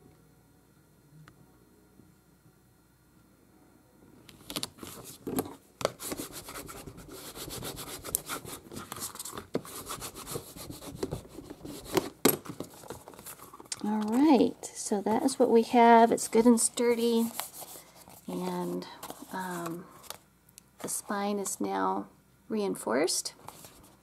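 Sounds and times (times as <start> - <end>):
paper scraping under hand: 6.0 - 12.0.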